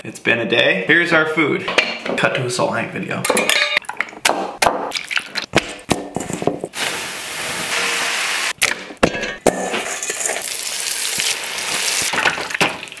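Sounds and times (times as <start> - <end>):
hot oil sizzling: 6.7 - 8.6, 9.8 - 13.0.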